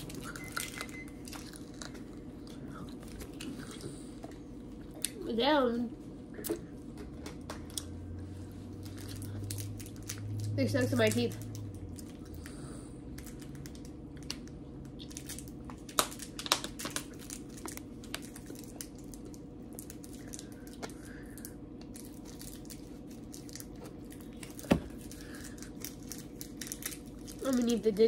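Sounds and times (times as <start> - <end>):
person chewing sticky candy: 0.0 - 5.2, 7.6 - 28.0
low hum: 0.0 - 27.9.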